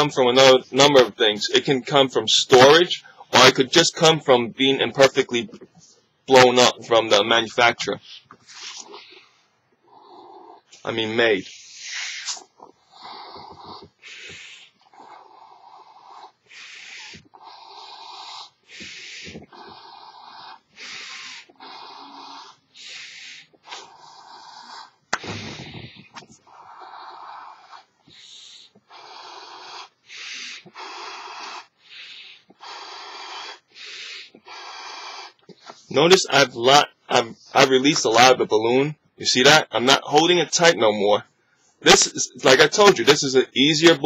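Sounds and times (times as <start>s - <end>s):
person blowing up balloon: 8.4s - 9.3s, 11.5s - 15.3s, 16.1s - 35.8s.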